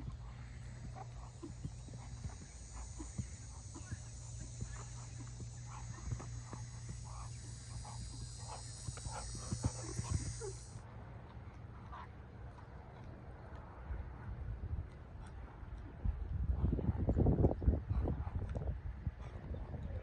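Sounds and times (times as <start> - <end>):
hooves knocking: 0.0 - 10.7
hooves thudding on sand: 0.0 - 10.8
low hum and hiss: 0.0 - 15.2.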